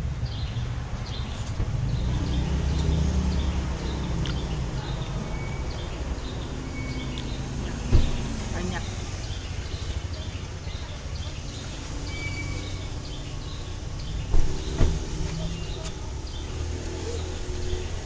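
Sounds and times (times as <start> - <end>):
birds chirping: 0.0 - 18.0
traffic rumble: 0.0 - 18.0
dull thumps: 14.2 - 16.0.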